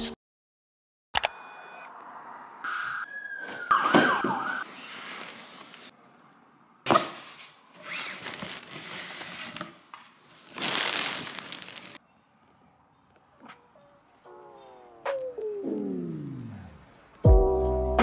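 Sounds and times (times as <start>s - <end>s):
plastic packaging rustling: 7.2s - 12.0s.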